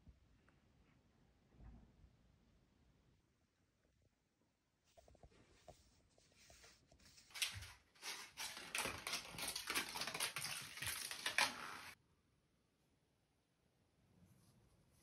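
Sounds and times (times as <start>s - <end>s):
kitten claws skittering and scratching: 7.0s - 12.0s.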